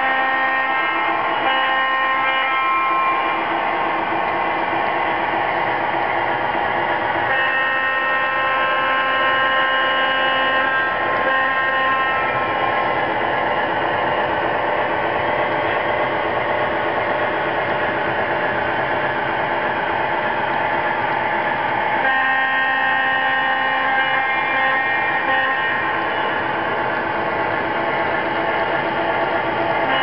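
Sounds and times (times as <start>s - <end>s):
model diesel horn: 0.0s - 3.3s, 7.3s - 12.5s, 22.0s - 26.4s.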